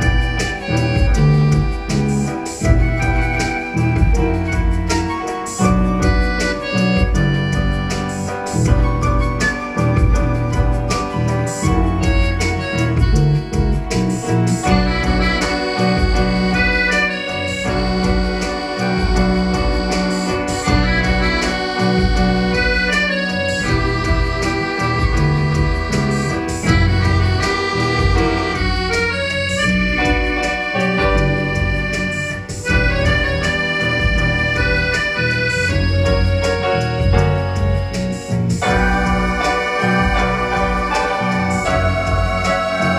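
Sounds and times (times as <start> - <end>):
accordion: 0.0 - 42.9
electric bass guitar: 0.0 - 42.9
electronic keyboard: 0.0 - 42.9.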